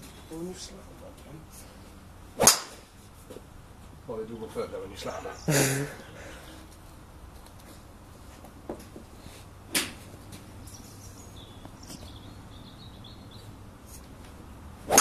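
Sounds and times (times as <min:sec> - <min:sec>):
golf ball and club clacks: 0:02.4 - 0:03.4, 0:09.7 - 0:10.8.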